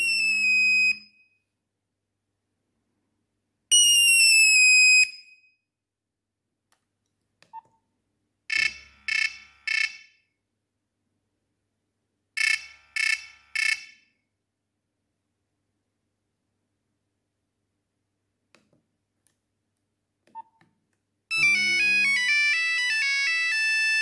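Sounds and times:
phone tone sliding downward: 0:21.3 - 0:24.0.

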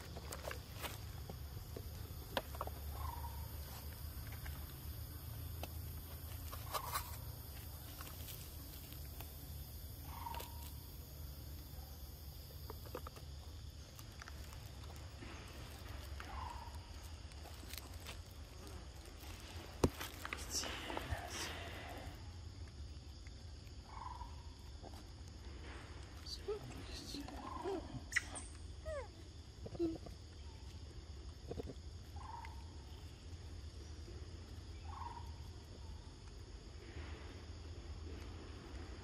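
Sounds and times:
soft animal calls: 0:02.9 - 0:03.8.

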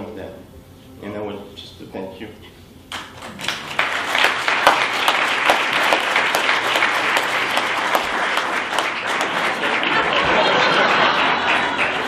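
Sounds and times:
audience applauding: 0:02.9 - 0:12.0.

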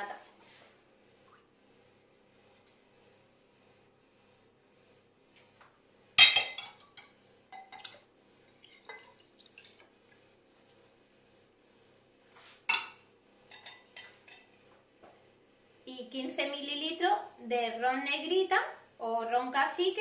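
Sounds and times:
milk pouring: 0:07.6 - 0:10.3.

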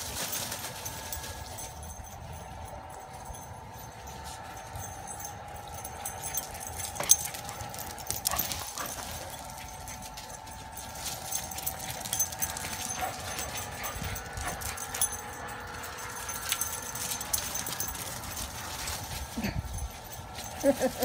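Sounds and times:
dogs moving about: 0:00.0 - 0:02.6, 0:03.3 - 0:21.0
steady hum: 0:00.0 - 0:21.0.

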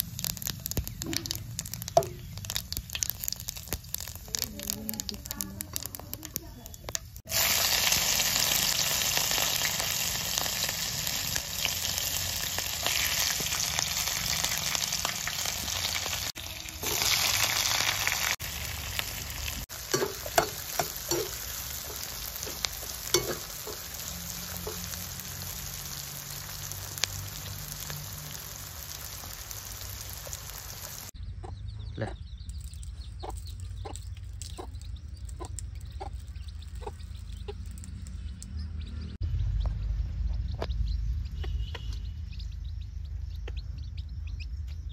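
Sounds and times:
vegetables sizzling in hot oil: 0:00.0 - 0:31.2
metal spoon scraping a pan: 0:19.8 - 0:25.2.

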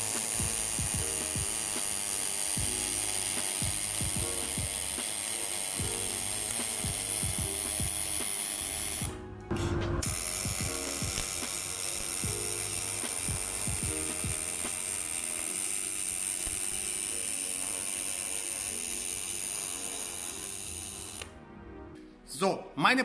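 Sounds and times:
arc welding crackling buzz: 0:00.0 - 0:09.2, 0:10.0 - 0:21.4.

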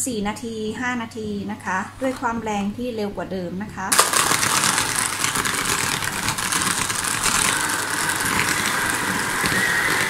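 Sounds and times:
electric hand mixer whipping: 0:03.9 - 0:10.0.

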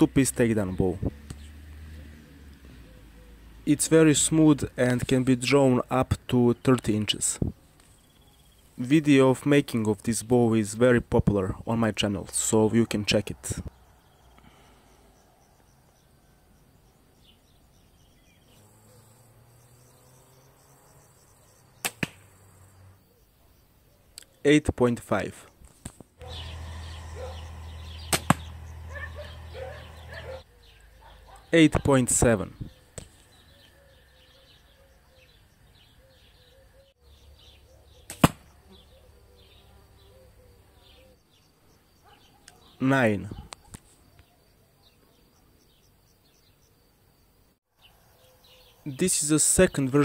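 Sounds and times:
faint insect chirping: 0:07.5 - 0:08.8, 0:13.7 - 0:24.4, 0:32.4 - 0:50.0
arrow striking target: 0:21.8 - 0:22.3, 0:28.1 - 0:28.5, 0:38.1 - 0:38.5
bow string snapping: 0:21.8 - 0:22.3, 0:28.1 - 0:28.5, 0:38.1 - 0:38.5.

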